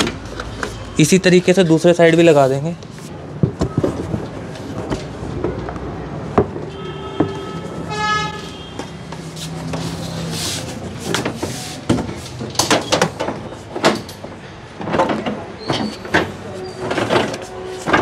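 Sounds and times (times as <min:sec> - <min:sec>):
vehicle horn toot: 0:06.7 - 0:09.0.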